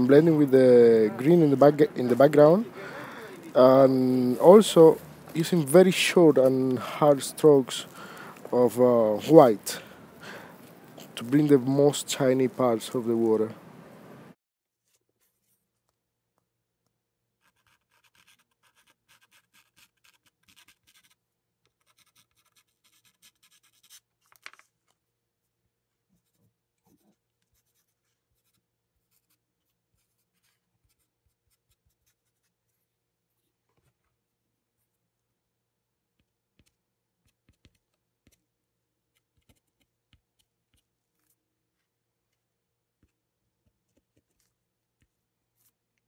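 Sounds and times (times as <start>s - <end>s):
pastel scratching across paper: 17.4s - 24.1s, 26.2s - 33.9s.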